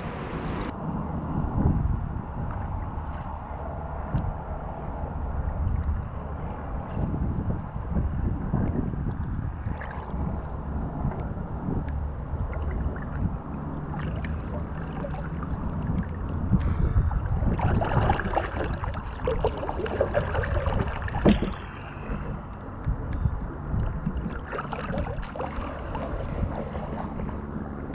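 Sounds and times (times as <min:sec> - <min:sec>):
wind rumble on microphone: 0:00.0 - 0:27.9
paddle splashing in water: 0:09.6 - 0:23.0, 0:23.6 - 0:27.9.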